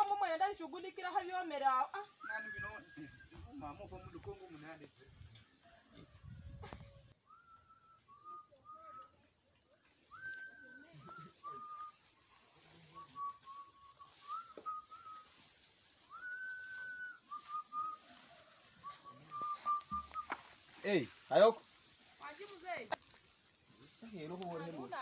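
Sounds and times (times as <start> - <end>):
faint high-pitched chirping: 0.0 - 25.0
slow whistled melody: 7.2 - 9.2, 10.1 - 12.1, 12.7 - 20.5.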